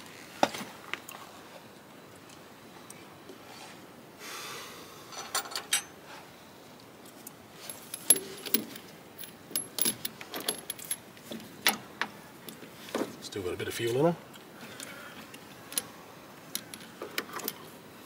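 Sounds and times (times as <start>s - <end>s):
metal hand tools clinking: 7.6s - 11.0s.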